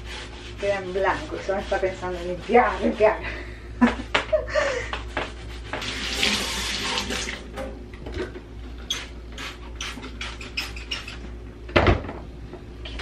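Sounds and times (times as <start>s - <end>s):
tap water running into a steel sink: 5.8s - 7.6s.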